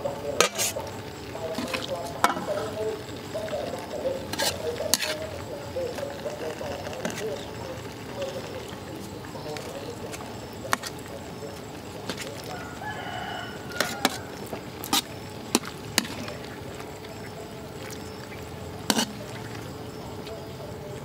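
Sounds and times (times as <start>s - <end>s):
chicken calling: 0.0s - 15.5s.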